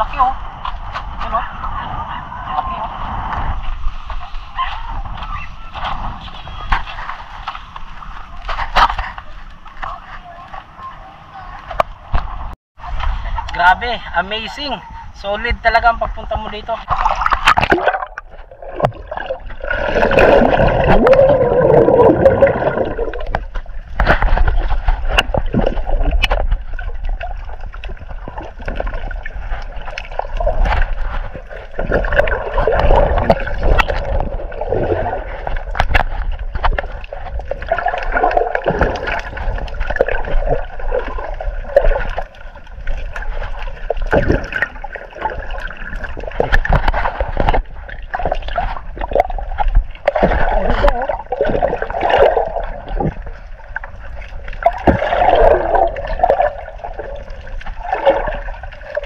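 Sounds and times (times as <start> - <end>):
water gurgling and sloshing: 0.0 - 59.0
water splashes: 15.8 - 59.0.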